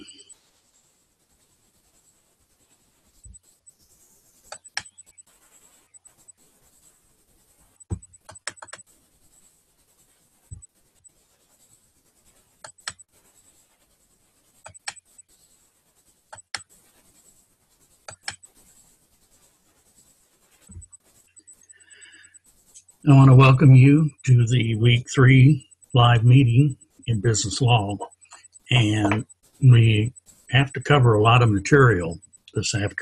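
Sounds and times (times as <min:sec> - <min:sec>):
faint hiss with high whine: 0:00.0 - 0:33.0
sharp computer clicks: 0:04.4 - 0:05.2, 0:07.8 - 0:08.8, 0:12.6 - 0:13.1, 0:14.6 - 0:15.2, 0:18.0 - 0:18.5.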